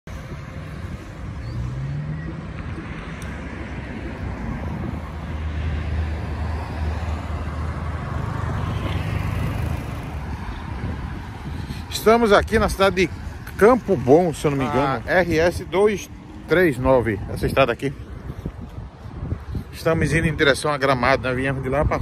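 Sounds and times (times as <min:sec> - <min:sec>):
hum of passing cars: 0:00.0 - 0:22.0
engine rising in pitch: 0:01.2 - 0:10.0.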